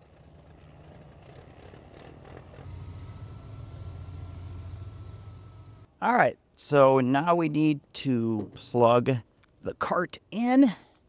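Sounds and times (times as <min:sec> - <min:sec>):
electric motor hum with whine: 0:01.4 - 0:05.9.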